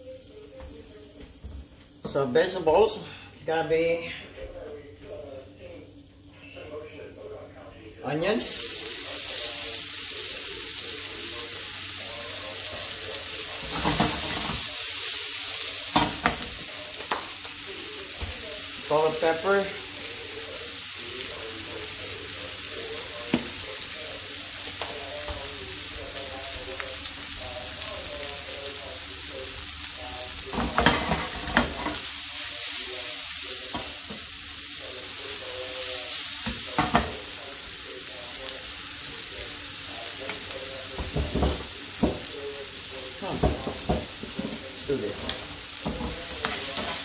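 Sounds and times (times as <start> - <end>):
onions sizzling in a frying pan: 8.0 - 47.0
knocks against a pan: 41.0 - 42.3.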